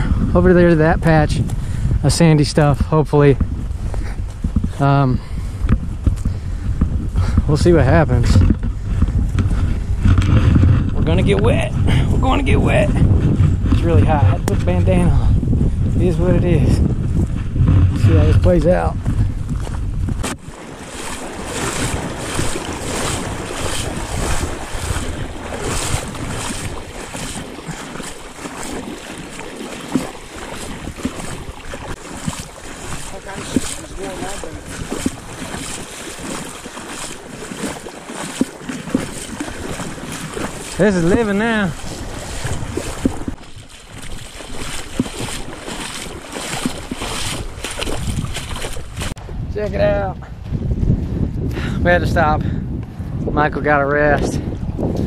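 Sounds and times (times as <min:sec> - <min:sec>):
wind rumble on microphone: 0:00.0 - 0:55.0
water splashing from wading: 0:20.2 - 0:49.2.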